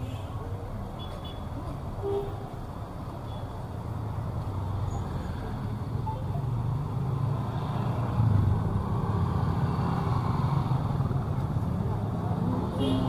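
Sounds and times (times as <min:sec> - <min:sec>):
road traffic rumble: 0:00.0 - 0:13.0
motorbikes passing: 0:03.9 - 0:13.0.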